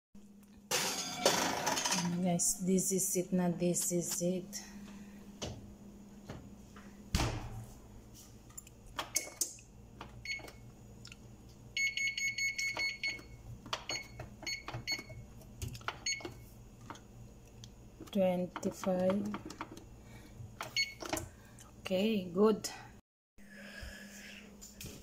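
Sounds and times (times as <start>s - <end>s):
oven door shutting with a thump: 7.1s - 7.7s.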